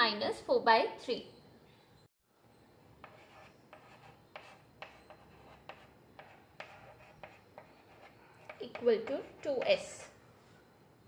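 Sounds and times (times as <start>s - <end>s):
chalk scratching on blackboard: 3.0s - 10.1s.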